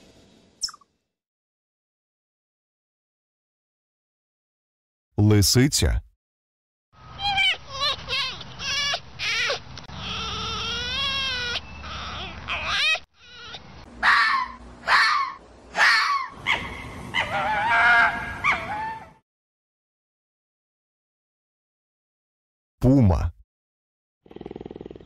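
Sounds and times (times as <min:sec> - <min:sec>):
fox screaming calls: 0:07.0 - 0:19.2
fox wavering cry: 0:07.1 - 0:19.2
fox yelping barks: 0:07.2 - 0:19.2.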